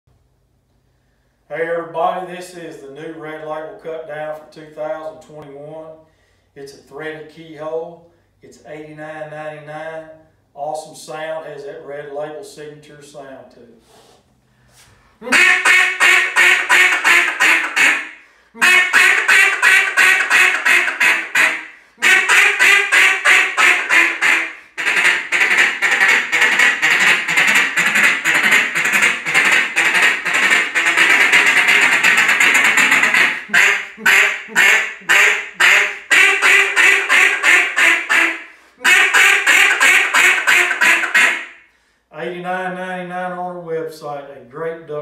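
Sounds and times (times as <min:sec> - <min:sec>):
duck call quacking: 0:15.2 - 0:41.6.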